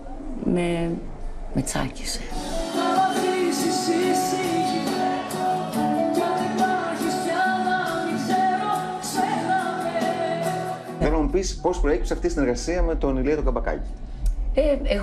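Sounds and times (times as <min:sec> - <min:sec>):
live band playing: 0:02.5 - 0:11.5
woman singing: 0:06.0 - 0:11.0.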